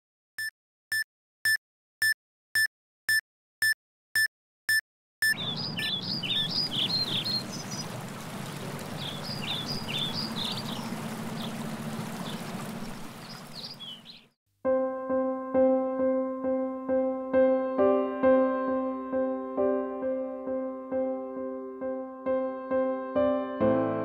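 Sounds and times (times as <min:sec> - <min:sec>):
heart monitor beeps: 0:00.4 - 0:05.9
songbirds chirping: 0:05.3 - 0:14.4.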